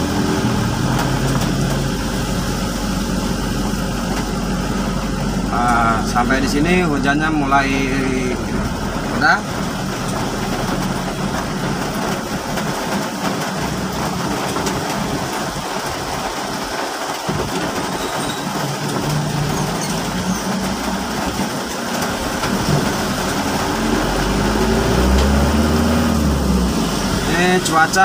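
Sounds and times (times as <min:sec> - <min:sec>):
car engine running: 0:00.0 - 0:28.0
light rain: 0:00.0 - 0:28.0
tyres hissing on wet road: 0:00.0 - 0:28.0.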